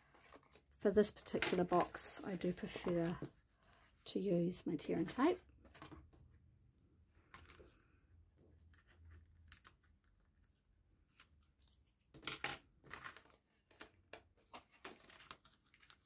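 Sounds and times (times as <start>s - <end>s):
paper rustles and taps: 1.2s - 3.3s.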